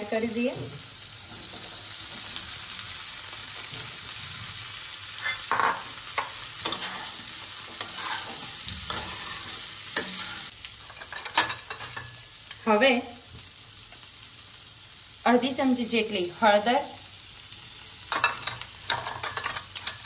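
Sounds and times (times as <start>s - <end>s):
vegetables sizzling in hot oil: 0.0s - 20.0s
spatula scraping and knocking pan: 5.2s - 12.2s.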